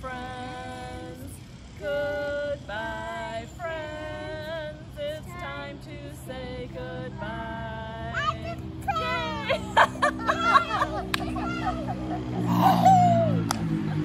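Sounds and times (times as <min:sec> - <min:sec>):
woman singing: 0:00.0 - 0:09.5
young children singing along: 0:00.0 - 0:09.5.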